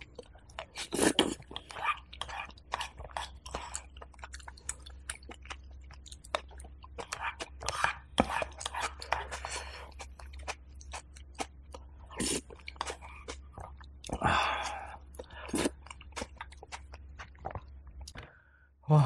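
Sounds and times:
chewing and wet mouth sounds: 0.0s - 18.5s
low steady hum: 0.0s - 19.0s.

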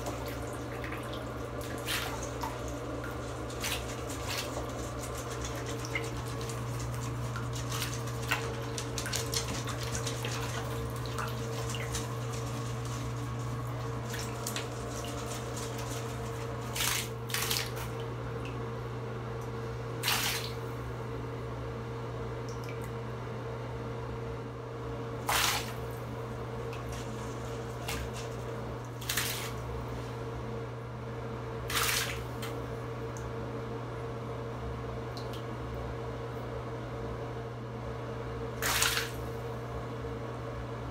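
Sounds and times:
water sloshing and splashing: 0.0s - 18.6s, 20.0s - 20.7s, 25.2s - 30.2s, 31.7s - 32.6s
steady low hum: 0.0s - 40.9s.

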